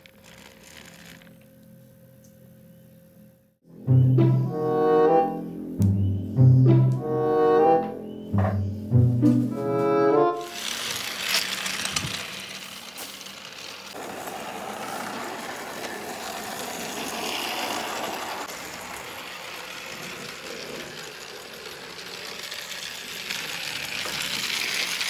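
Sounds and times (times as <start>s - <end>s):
toy train rattling on track: 10.4s - 25.0s.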